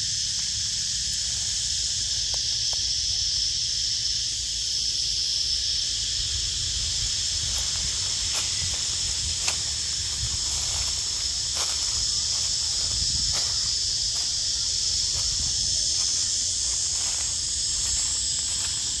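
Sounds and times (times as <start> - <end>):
insect chorus drone: 0.0 - 19.0.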